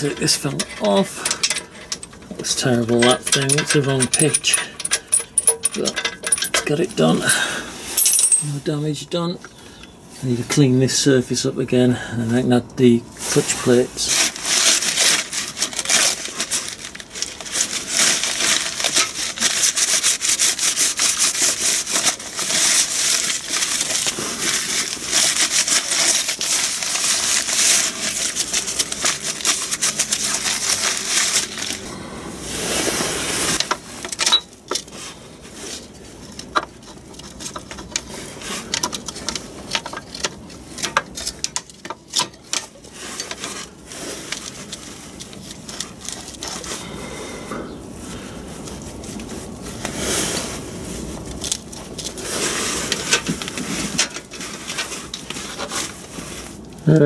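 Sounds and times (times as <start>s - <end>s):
paper towel rubbing on metal: 13.3s - 31.9s.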